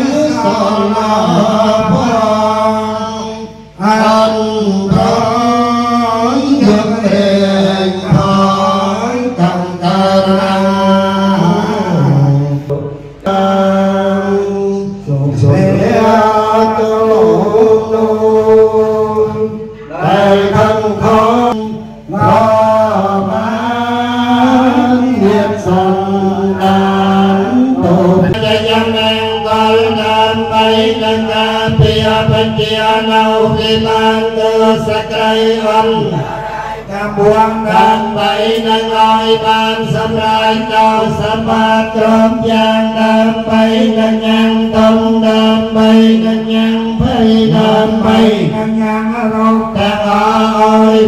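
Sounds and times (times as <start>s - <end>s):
men chanting together: 0.0s - 51.0s.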